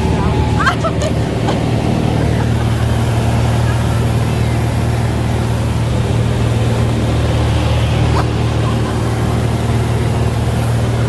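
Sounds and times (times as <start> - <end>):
light airplane engine droning: 0.0 - 11.0.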